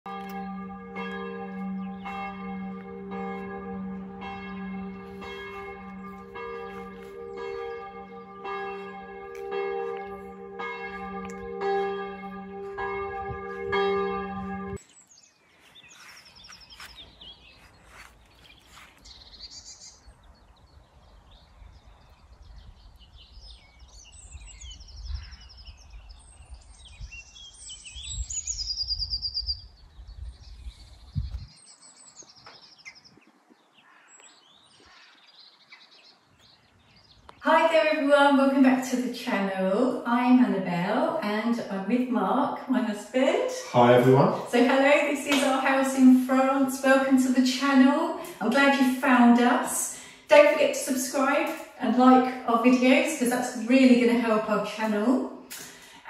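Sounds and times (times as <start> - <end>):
church bell tolling: 0.1 - 14.8
small birds chirping: 14.7 - 37.4, 43.2 - 48.8.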